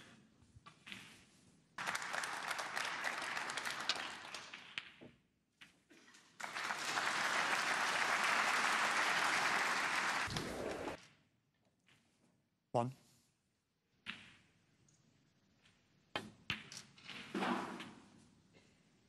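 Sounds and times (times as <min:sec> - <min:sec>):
audience applauding: 0:01.8 - 0:04.6, 0:06.4 - 0:11.0.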